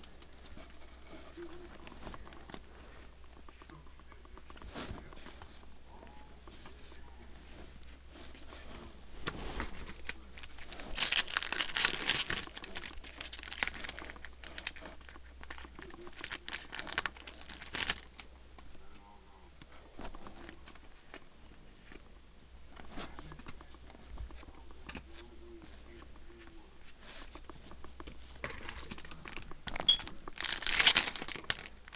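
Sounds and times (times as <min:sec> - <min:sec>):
foil wrapper crinkling and tearing: 0:09.7 - 0:18.3, 0:28.5 - 0:31.9.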